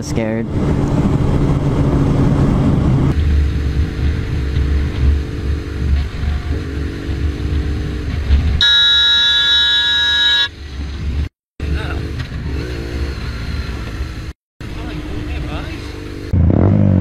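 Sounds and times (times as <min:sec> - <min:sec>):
motorcycle engine rumbling: 0:00.0 - 0:17.0
vehicle horn blaring: 0:08.6 - 0:10.6.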